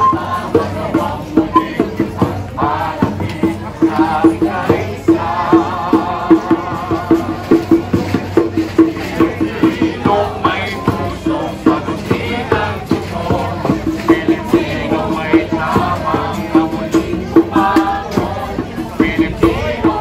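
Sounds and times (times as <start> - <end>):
wavering melody: 0.0 - 3.0.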